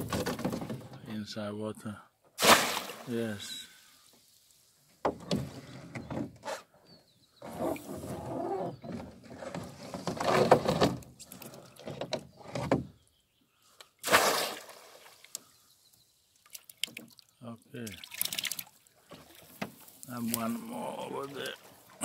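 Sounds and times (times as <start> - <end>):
water sloshing and splashing: 2.4 - 3.2, 14.0 - 15.4, 16.3 - 22.0.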